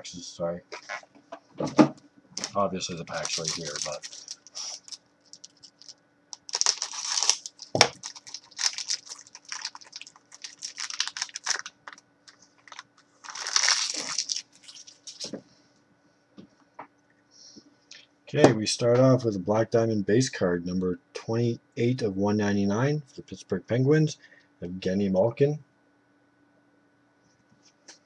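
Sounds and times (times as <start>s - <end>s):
wrapper crinkling and tearing: 2.4s - 15.3s.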